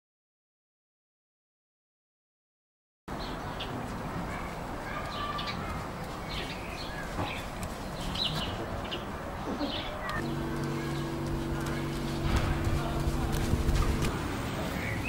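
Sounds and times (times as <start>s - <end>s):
small birds chirping: 3.1s - 15.0s
outdoor background hum: 3.2s - 15.0s.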